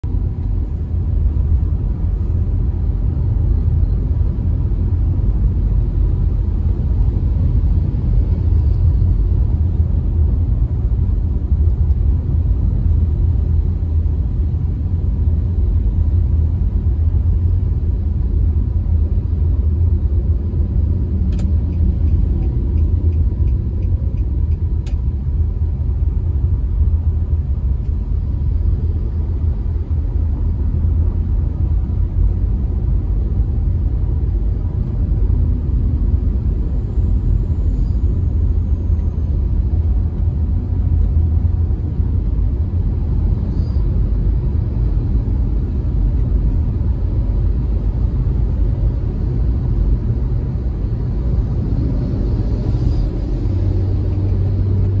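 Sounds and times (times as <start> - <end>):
car engine and tyre rumble: 0.0 - 55.0
light ticks: 21.3 - 25.1.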